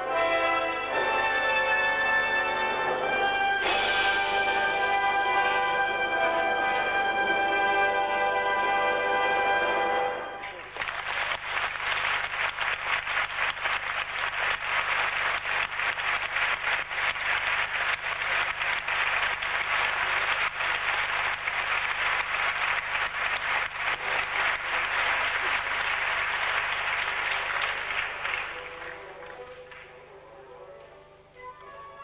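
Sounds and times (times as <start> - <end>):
audience applauding: 10.4 - 30.0.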